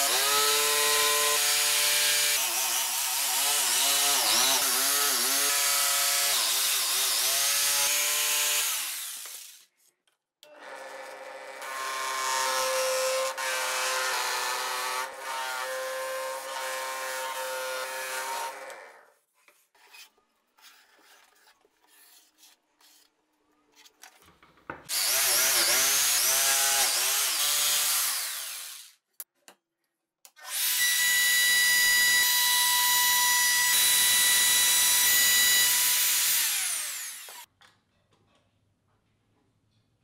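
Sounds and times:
jigsaw cutting plywood: 0.0 - 9.6, 10.6 - 19.0, 24.9 - 28.9, 30.4 - 37.5
power tool winding down: 24.9 - 28.9, 30.4 - 37.5.

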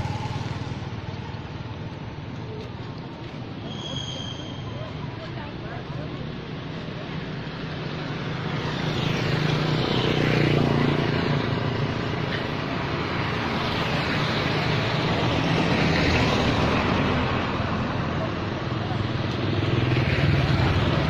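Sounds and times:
road traffic passing close: 0.0 - 21.0.

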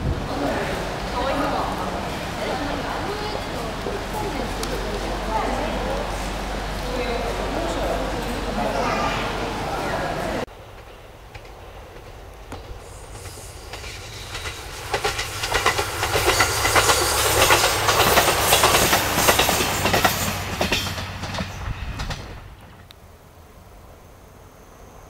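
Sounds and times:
wheels clicking over rail joints: 0.0 - 9.1, 10.1 - 23.0
diesel engine humming low: 0.0 - 10.5.

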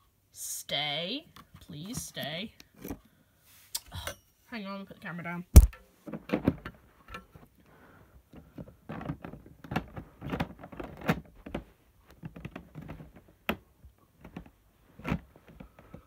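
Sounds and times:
plastic parts clicking and knocking: 8.3 - 16.0.

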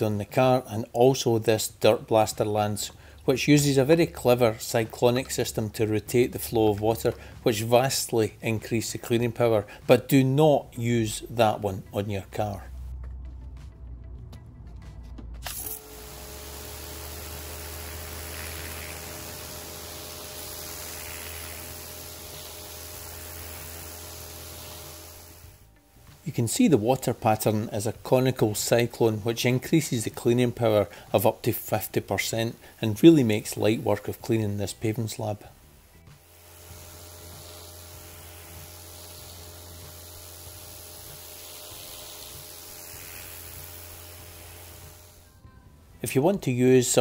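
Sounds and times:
pressure washer humming: 2.5 - 12.9, 15.4 - 35.4, 36.1 - 45.4
pressure washer spraying concrete: 15.4 - 25.6, 36.2 - 45.3.

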